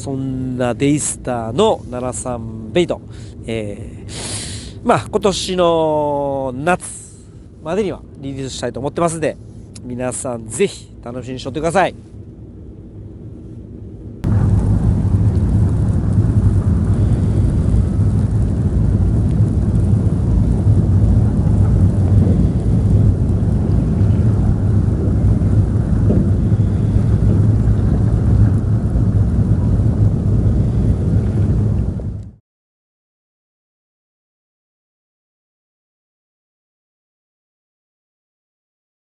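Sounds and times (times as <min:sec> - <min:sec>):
wind buffeting microphone: 0:00.0 - 0:32.4.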